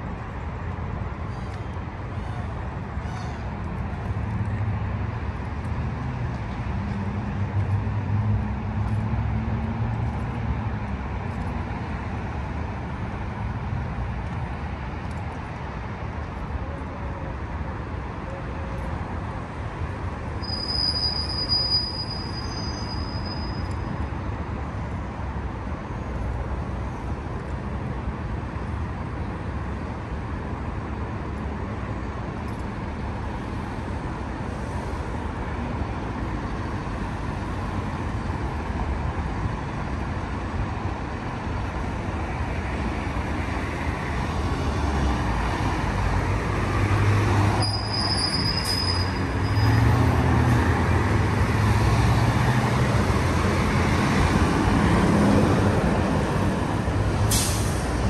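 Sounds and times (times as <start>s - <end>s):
road noise from passing vehicles: 0.0s - 58.0s
thin high squeal: 20.4s - 23.6s, 47.6s - 49.8s.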